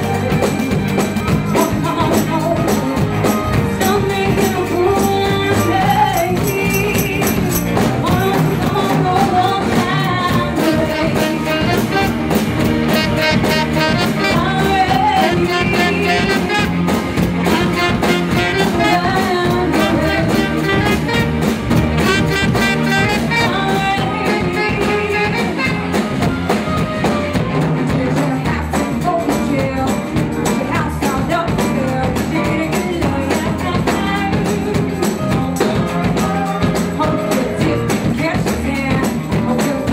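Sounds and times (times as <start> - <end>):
woman singing into microphone: 0.0 - 12.2, 13.0 - 16.8, 17.5 - 21.3, 22.0 - 26.0, 27.8 - 39.9
saxophone line: 0.0 - 27.8
drum kit with cymbal strokes: 0.0 - 39.9
electric bass: 0.0 - 39.9.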